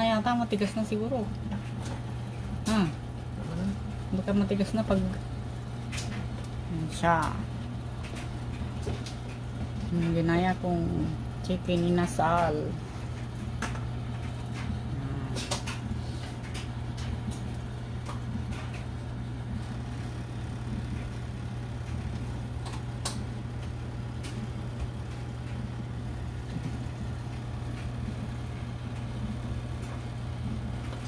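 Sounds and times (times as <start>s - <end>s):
oven fan motor hum: 0.0s - 31.0s
sharp clicks and crackles: 19.6s - 31.0s.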